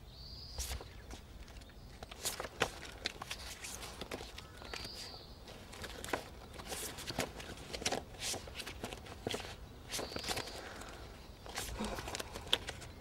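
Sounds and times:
photo prints flipped by hand: 0:00.6 - 0:13.0.

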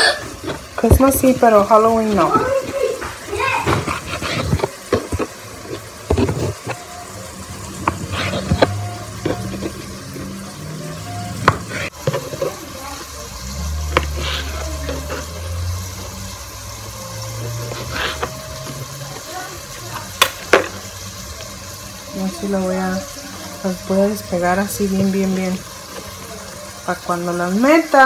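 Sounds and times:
knife cutting through tortillas: 0:03.7 - 0:06.8, 0:07.8 - 0:09.8.

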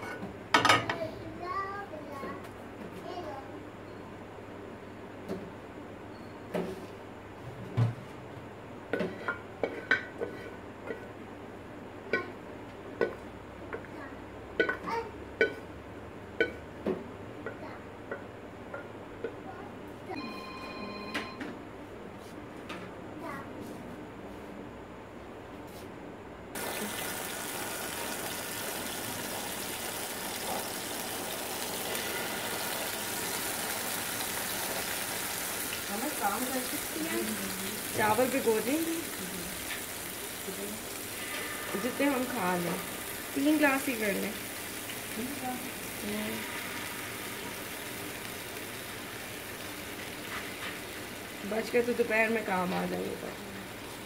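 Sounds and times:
chicken sizzling on grill pan: 0:26.6 - 0:54.0.

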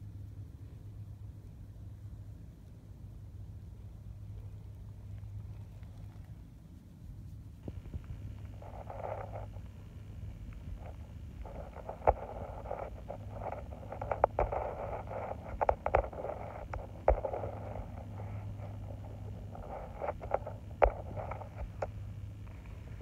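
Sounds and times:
low hum: 0:00.0 - 0:23.0
cat scuffling on dirt: 0:04.8 - 0:23.0.

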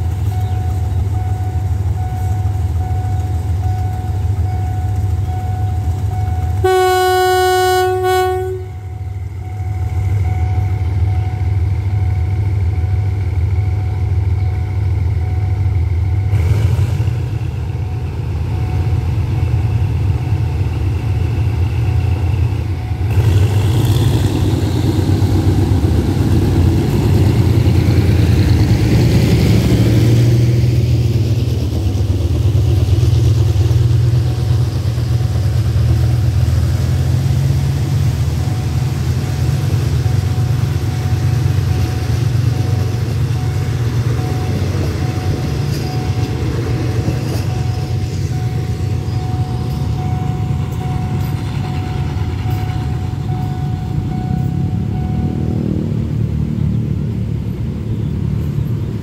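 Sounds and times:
diesel locomotive engine drone: 0:00.0 - 0:59.0
rolling passenger coaches: 0:00.0 - 0:59.0
locomotive air horn: 0:06.5 - 0:08.9.

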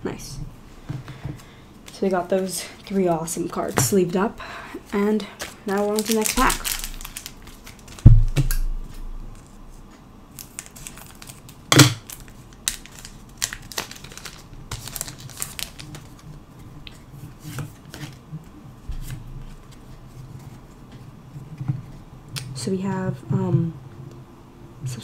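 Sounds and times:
foil pack crinkling: 0:04.9 - 0:08.6, 0:10.3 - 0:17.0
foil wrapper ripping: 0:05.4 - 0:08.6, 0:10.3 - 0:16.4
thump: 0:08.1 - 0:08.5.

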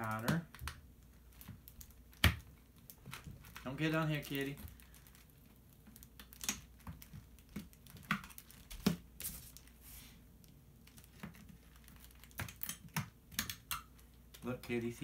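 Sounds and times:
plastic sheet rustling: 0:01.2 - 0:10.2.

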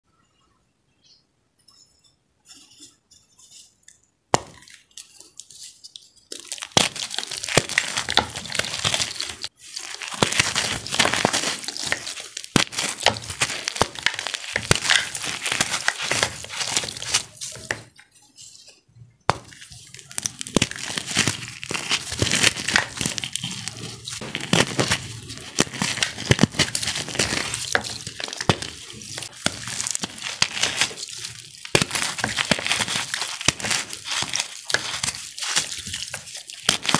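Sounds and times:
wet crumbling and crunching: 0:06.3 - 0:17.9, 0:19.3 - 0:36.9.

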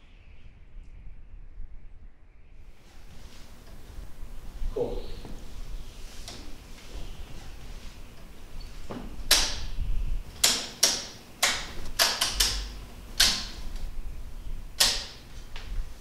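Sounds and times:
circuit breaker clicks: 0:09.2 - 0:14.0, 0:14.7 - 0:15.7.

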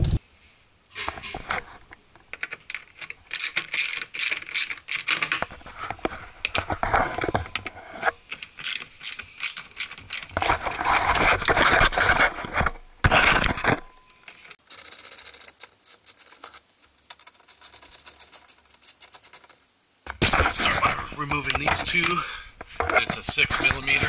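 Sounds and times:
ratchet clicking: 0:08.4 - 0:10.3, 0:14.6 - 0:19.6.

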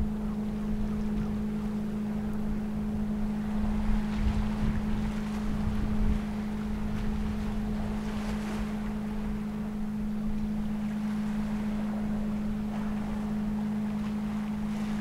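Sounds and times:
ship engines humming: 0:00.0 - 0:15.0
wind buffeting microphone: 0:02.2 - 0:10.5.

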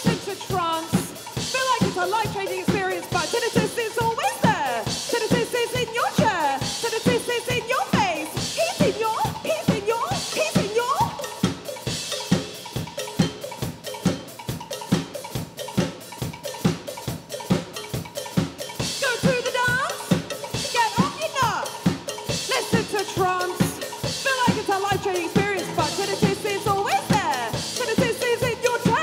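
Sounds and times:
drum kit beat: 0:00.0 - 0:29.0
sliding pitched instrument notes: 0:24.7 - 0:29.0.

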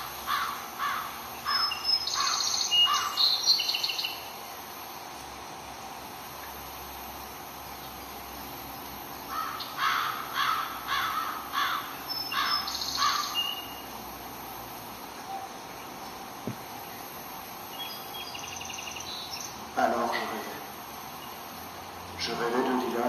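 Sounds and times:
small birds chirping: 0:00.0 - 0:04.3, 0:09.3 - 0:13.9, 0:15.2 - 0:20.4
background hiss: 0:00.0 - 0:23.0
crow cawing: 0:00.2 - 0:03.2, 0:09.3 - 0:13.4.

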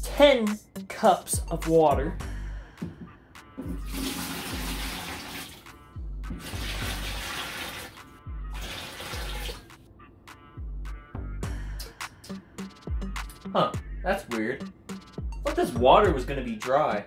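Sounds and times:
background music with low beat: 0:00.0 - 0:17.0
water pouring into pitcher: 0:03.6 - 0:05.7, 0:06.4 - 0:09.7.

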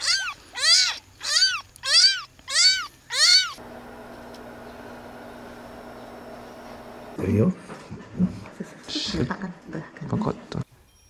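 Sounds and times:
kitten mewing: 0:00.0 - 0:03.6
steady low hum: 0:03.6 - 0:07.2.

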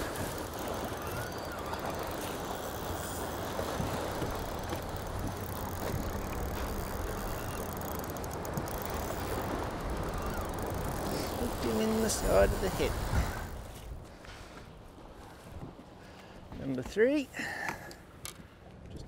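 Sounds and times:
water rushing: 0:00.0 - 0:13.8
wind: 0:00.0 - 0:19.0.

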